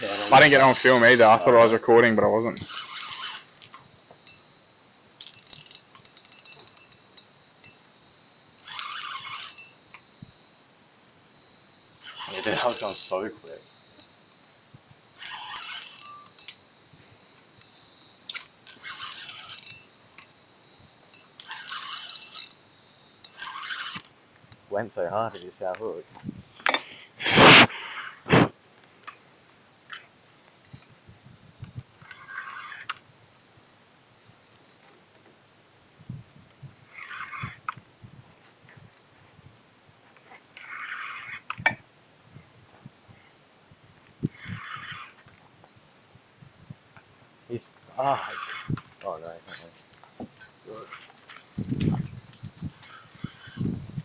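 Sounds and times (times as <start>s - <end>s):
camera rubbing against clothing: 0.0s - 1.6s, 2.6s - 3.6s, 27.2s - 28.5s, 32.0s - 33.0s, 36.9s - 37.7s, 44.2s - 45.3s, 48.0s - 48.9s, 49.5s - 54.0s
fishing reel clicking: 2.5s - 4.4s, 5.2s - 7.8s, 8.6s - 9.8s, 12.0s - 14.1s, 15.2s - 16.6s, 17.6s - 20.3s, 21.1s - 22.6s, 23.2s - 24.6s.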